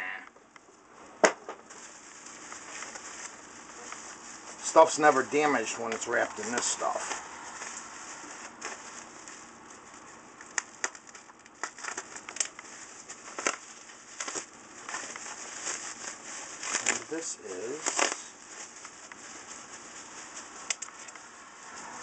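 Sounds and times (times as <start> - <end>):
bubble wrap crinkling: 1.6 - 22.0
bubble wrap snaps: 7.6 - 21.3.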